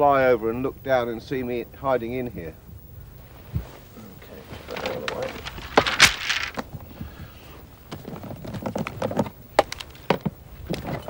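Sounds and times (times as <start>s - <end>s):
bamboo canes clattering: 4.2s - 7.0s, 7.9s - 11.0s.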